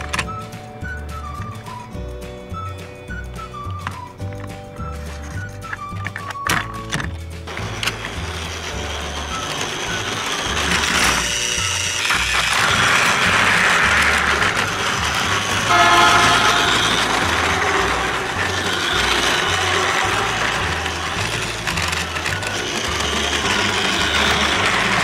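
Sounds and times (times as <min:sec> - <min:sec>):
wheels rattling on plastic rails: 0:00.0 - 0:02.0, 0:02.6 - 0:25.0
toy train motor whirring: 0:04.9 - 0:25.0
brief pitched tone: 0:15.6 - 0:18.4.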